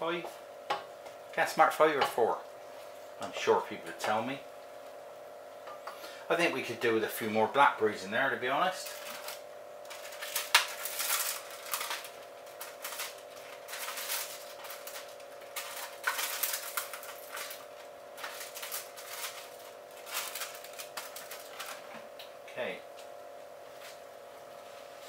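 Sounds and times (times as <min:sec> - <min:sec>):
steady hum: 0:00.0 - 0:25.0
plastic punnet crinkling: 0:08.8 - 0:22.1.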